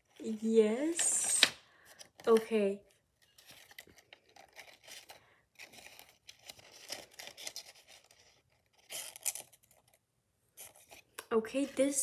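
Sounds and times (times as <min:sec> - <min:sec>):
paper rustling and scraping: 0:03.2 - 0:10.0.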